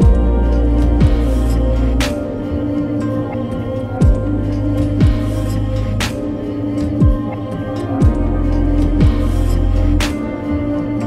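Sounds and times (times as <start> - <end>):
deep kick drum: 0.0 - 1.4, 4.0 - 4.3, 5.0 - 5.3, 7.0 - 7.3, 8.0 - 8.4, 9.0 - 9.3
sustained synth chord: 0.0 - 11.0.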